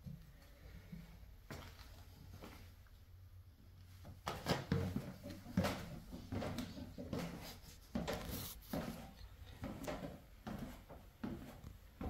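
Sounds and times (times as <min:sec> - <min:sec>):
footsteps on wooden stairs: 0:04.3 - 0:12.0.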